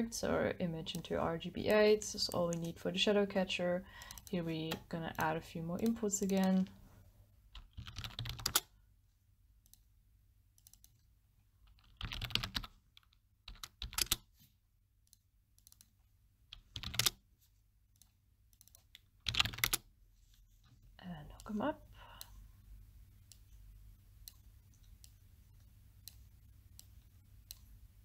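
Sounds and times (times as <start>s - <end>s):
typing on computer keyboard: 3.9s - 6.6s, 7.6s - 8.7s, 11.7s - 14.2s, 16.5s - 17.2s, 18.6s - 19.9s.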